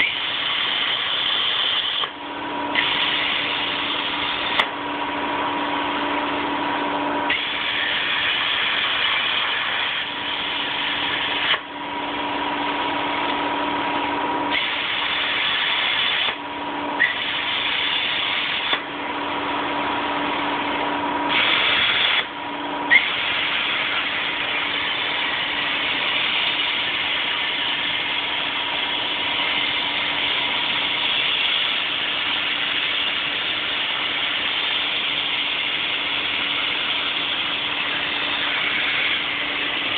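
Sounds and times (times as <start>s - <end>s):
plasma torch cutting steel: 0.0s - 4.7s, 7.3s - 11.7s, 14.5s - 16.4s, 17.0s - 18.9s, 21.3s - 39.9s
machine hum: 0.0s - 39.9s.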